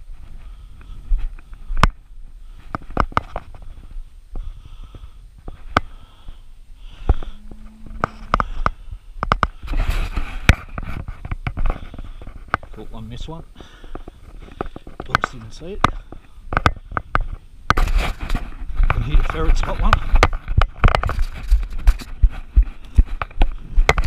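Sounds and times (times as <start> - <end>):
breathy noise on microphone: 0.0 - 24.0
sharp clicks and knocks: 7.0 - 12.8, 13.8 - 24.0.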